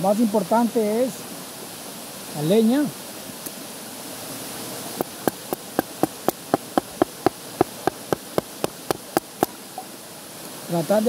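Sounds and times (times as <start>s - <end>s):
machete knocking on wood: 5.0s - 9.6s.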